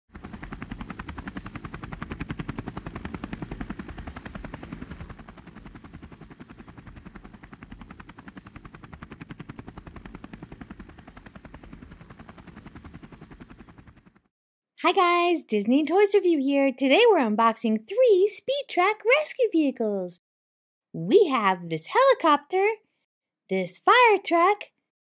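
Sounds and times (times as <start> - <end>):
helicopter rotor chopping: 0.1 - 14.3.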